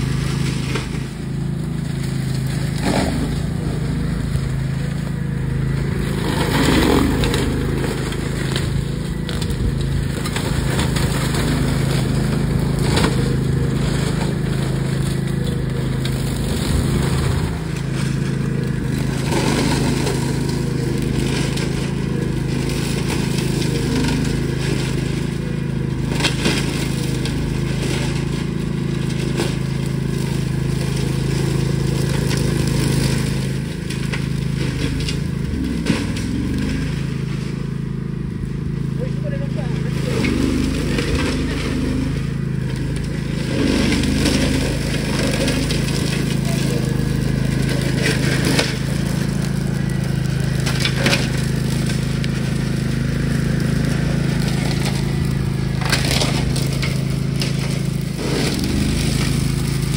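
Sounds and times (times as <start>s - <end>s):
cutters chopping undergrowth: 0.0s - 59.9s
mower engine running: 0.0s - 59.9s
wood cracking and snapping: 2.0s - 3.7s, 26.1s - 37.5s, 42.8s - 49.2s, 49.8s - 59.9s.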